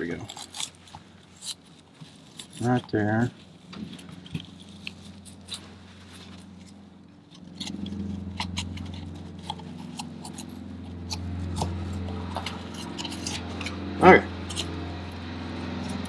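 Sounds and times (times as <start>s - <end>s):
oil filter paper scraping metal: 0.0s - 16.0s
steady low hum: 0.0s - 16.0s.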